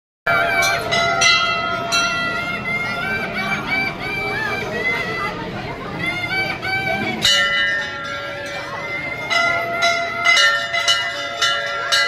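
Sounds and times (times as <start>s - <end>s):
brass bells clanging: 0.3s - 4.4s, 6.8s - 12.0s.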